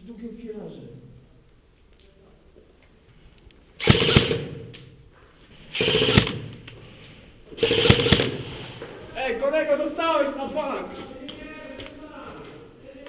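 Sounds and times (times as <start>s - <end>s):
airsoft rifle full-auto bursts: 3.8s - 4.7s, 5.7s - 6.7s, 7.6s - 8.6s.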